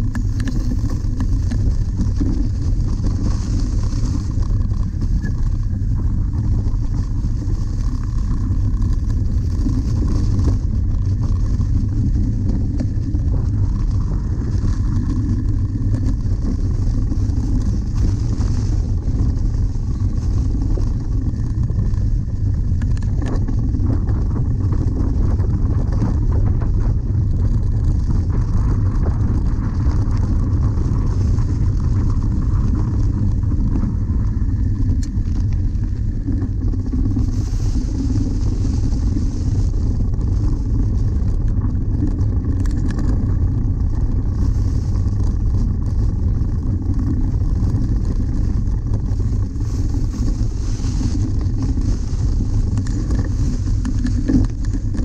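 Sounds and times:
wind buffeting: 0.0s - 55.0s
tyres rolling over leafy grass: 34.5s - 55.0s.

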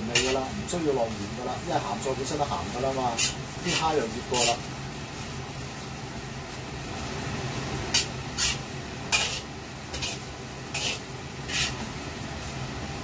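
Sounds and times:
spatula scraping a wok: 0.0s - 0.5s, 2.5s - 5.9s, 7.9s - 12.0s.

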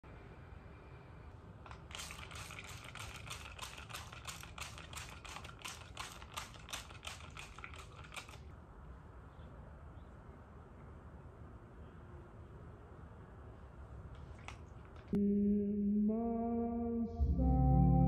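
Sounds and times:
spray bottle squirts: 1.6s - 8.5s.

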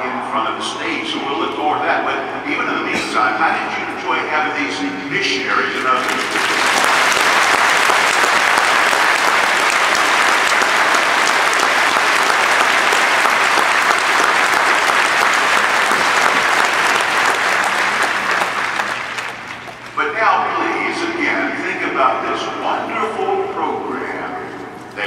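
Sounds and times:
audience applauding: 5.8s - 20.0s.

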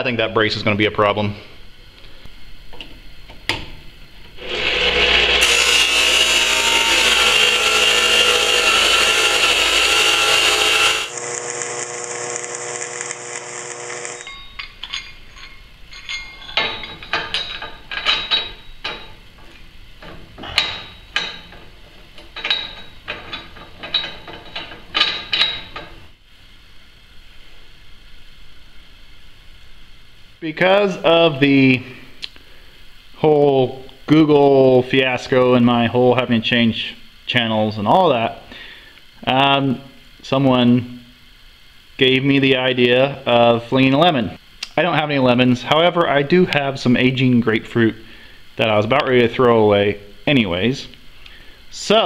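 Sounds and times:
power tool running: 4.4s - 14.4s.

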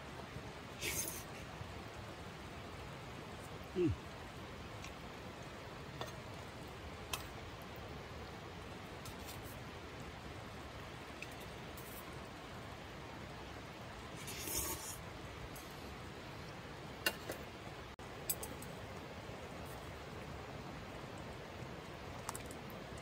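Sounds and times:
rustle: 0.0s - 23.0s
stew bubbling and hissing: 0.6s - 17.3s.

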